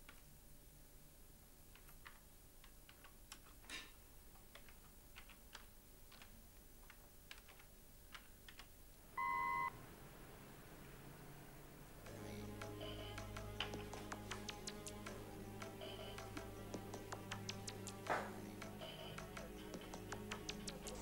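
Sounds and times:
computer keyboard typing: 0:01.7 - 0:03.6, 0:04.4 - 0:08.7.

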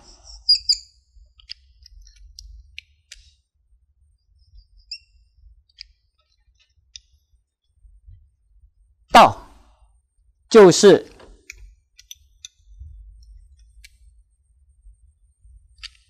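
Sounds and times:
whiteboard marker squeaking: 0:00.0 - 0:01.0, 0:04.4 - 0:05.2.

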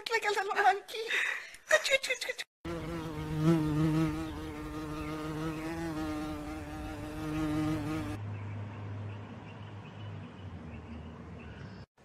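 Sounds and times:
flying insect buzzing: 0:02.7 - 0:08.2.

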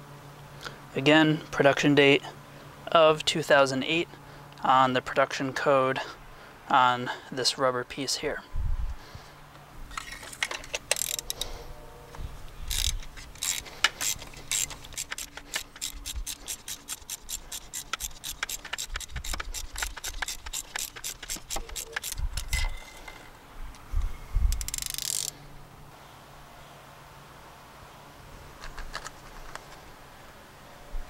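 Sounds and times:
socket ratchet clicking: 0:10.0 - 0:11.5, 0:12.7 - 0:22.8, 0:24.5 - 0:25.4.

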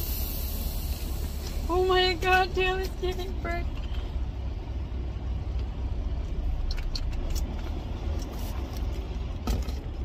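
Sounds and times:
truck diesel engine idling: 0:00.0 - 0:07.2.

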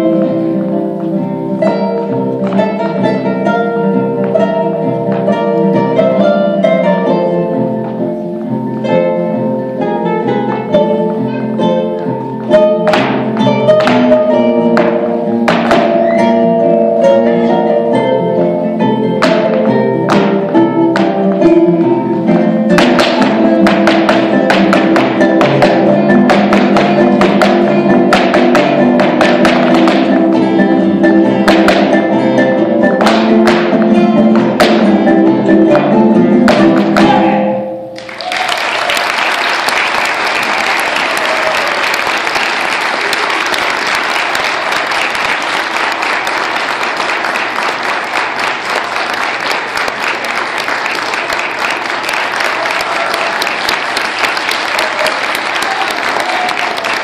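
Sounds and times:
guitar ensemble playing polka: 0:00.0 - 0:38.0
shoe taps of dancers: 0:12.0 - 0:16.1, 0:19.2 - 0:21.6, 0:22.7 - 0:30.6, 0:31.4 - 0:32.1, 0:33.0 - 0:35.0
audience applauding: 0:38.0 - 0:57.0.

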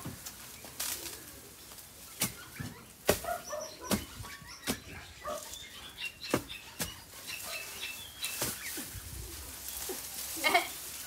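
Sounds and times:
spade chopping into soil and roots: 0:02.2 - 0:05.0, 0:06.3 - 0:07.0, 0:08.3 - 0:08.7.

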